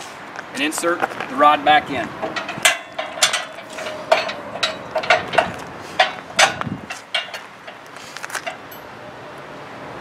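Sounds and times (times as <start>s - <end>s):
metal rod clinking on frame: 1.9s - 8.9s
metallic ring: 2.2s - 7.8s, 8.4s - 9.1s.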